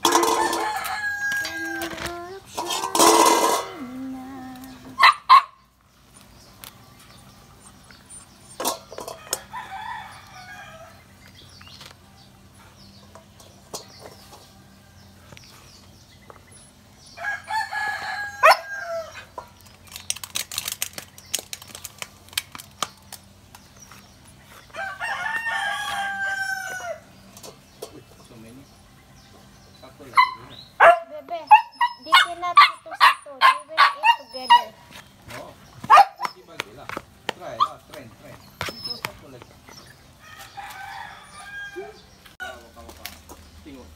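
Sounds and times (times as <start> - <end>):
rooster crowing: 0.1 - 2.0, 9.1 - 11.0, 17.2 - 19.3, 24.7 - 27.1, 40.2 - 42.7.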